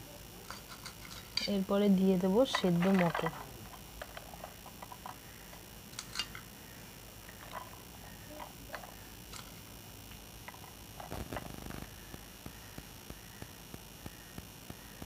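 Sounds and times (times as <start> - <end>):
utensils tapping plates: 0.5 - 1.7, 2.3 - 5.2, 5.9 - 6.5.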